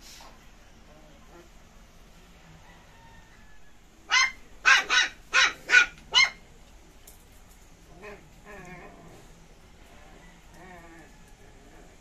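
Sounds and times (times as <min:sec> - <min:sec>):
dog barking: 0:04.1 - 0:06.4.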